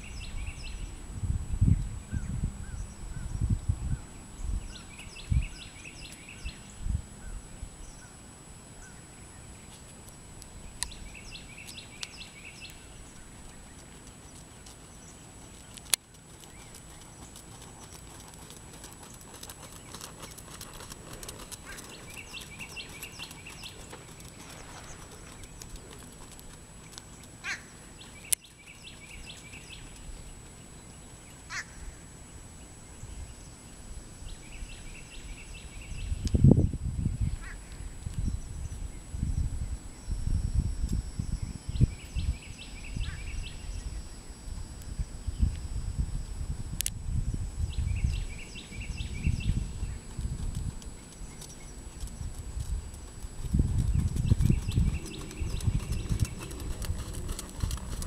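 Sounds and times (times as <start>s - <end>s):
faint outdoor hiss: 0.0s - 58.0s
bird chirping: 10.6s - 15.8s, 16.4s - 31.3s, 53.0s - 58.0s.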